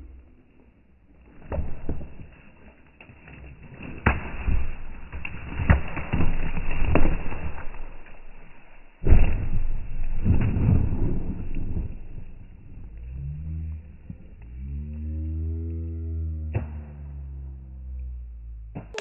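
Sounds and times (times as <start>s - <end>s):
log thudding down rock slope: 1.2s - 2.4s, 3.0s - 14.3s.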